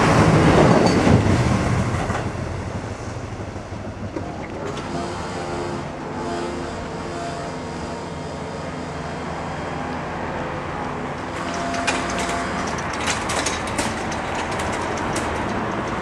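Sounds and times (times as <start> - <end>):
wheels clattering on rails: 0.0 - 5.0, 10.8 - 16.0
train diesel engines droning: 0.0 - 16.0.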